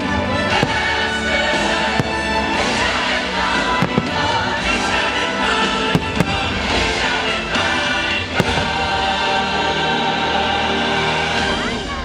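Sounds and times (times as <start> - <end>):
loud dense music: 0.0 - 12.0
firework shells bursting: 0.5 - 5.1.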